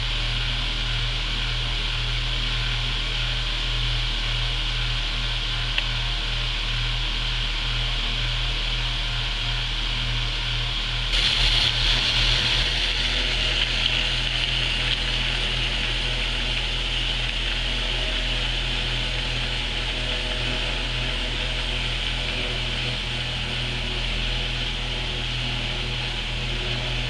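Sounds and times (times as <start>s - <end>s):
electrical hum: 0.0s - 27.0s
model train whir and hiss: 11.1s - 27.0s.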